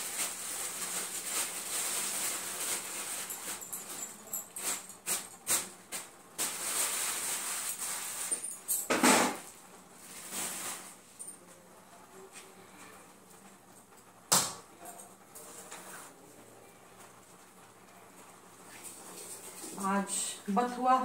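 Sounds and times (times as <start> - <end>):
rustling greens and plastic bag: 0.0 - 8.4, 10.0 - 11.1.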